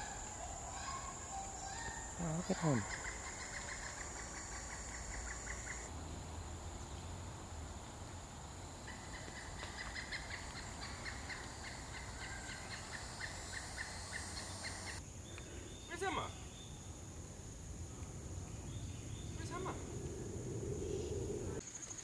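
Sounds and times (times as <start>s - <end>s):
woodpecker calling: 0.0s - 5.9s, 8.8s - 16.7s
high insect drone: 0.0s - 22.0s.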